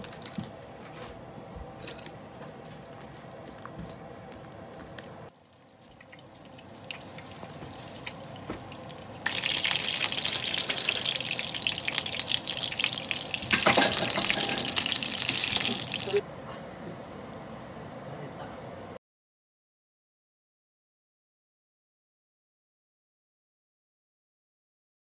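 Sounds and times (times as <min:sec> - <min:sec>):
spring rolls sizzling in oil: 0:05.9 - 0:16.2.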